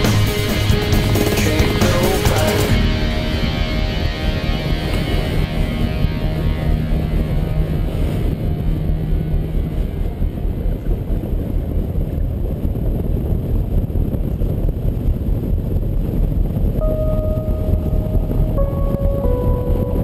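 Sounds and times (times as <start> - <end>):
wind rushing over microphone: 0.0 - 20.0.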